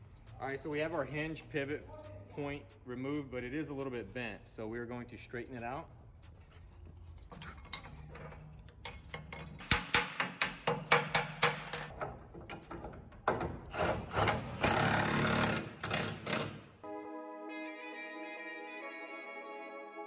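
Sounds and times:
hammer striking steel: 8.9 - 12.6.

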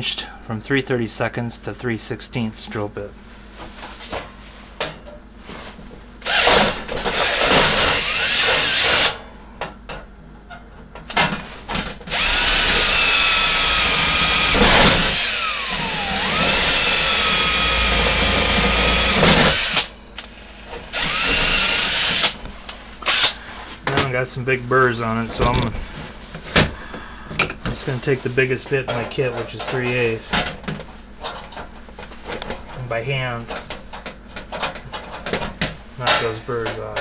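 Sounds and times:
cordless drill boring through steel: 6.2 - 9.2, 12.1 - 22.4, 23.1 - 23.4.

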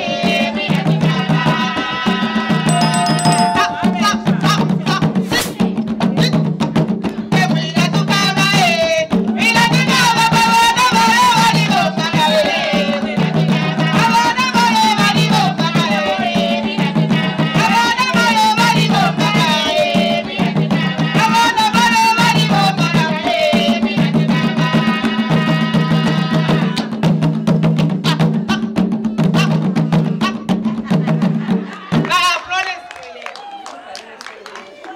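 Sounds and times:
women singing: 0.0 - 4.4, 8.5 - 26.9
hand drums beating: 2.7 - 5.1.

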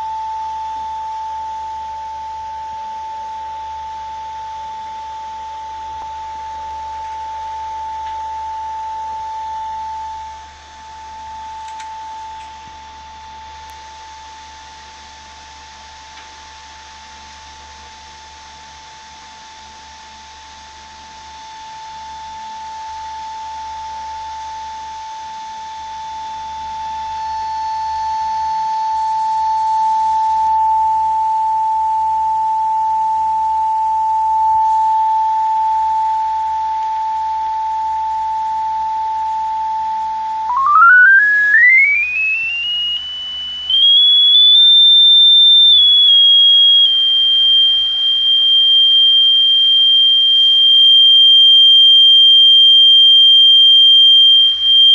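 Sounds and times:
sine-wave test tone: 0.0 - 54.9.

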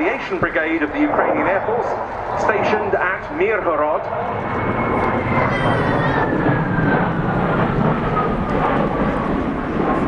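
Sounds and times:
jet engines rumbling: 0.0 - 10.0
jet whine falling in pitch: 0.0 - 10.0.

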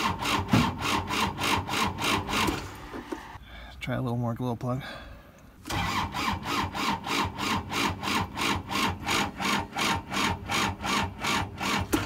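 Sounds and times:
diesel engine cranking on starter: 0.0 - 3.3, 5.6 - 12.0.

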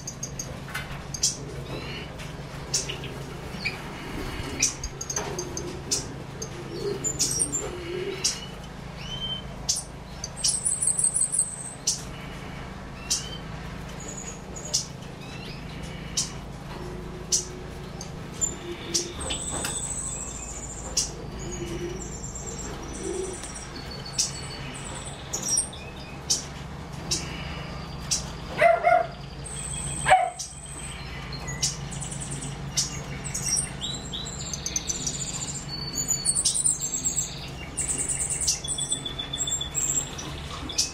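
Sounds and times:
high buzzy bird trills: 0.0 - 40.9
low steady hum: 0.0 - 40.9
small birds chirping: 0.0 - 40.9.

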